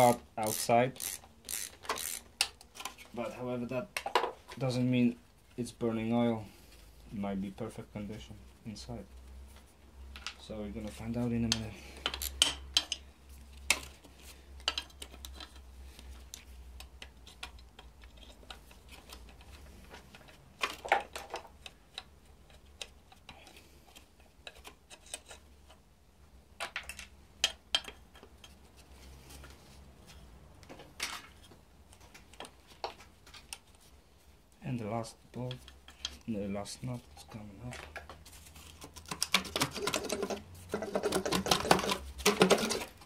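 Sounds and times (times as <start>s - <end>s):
socket ratchet clicking: 0.4s - 2.6s.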